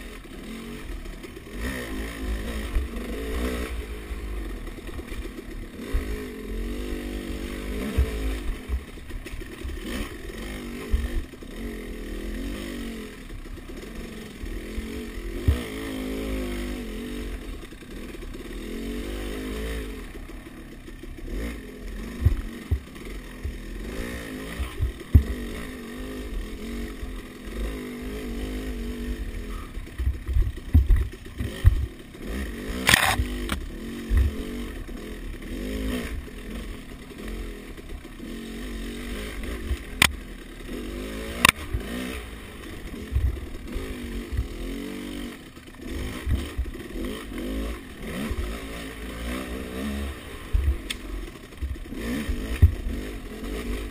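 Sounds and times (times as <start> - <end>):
dirt bike engine revving: 0.0 - 53.9
thumps and clatter from bike: 24.6 - 25.4, 30.0 - 31.9, 46.2 - 46.7, 51.6 - 53.0.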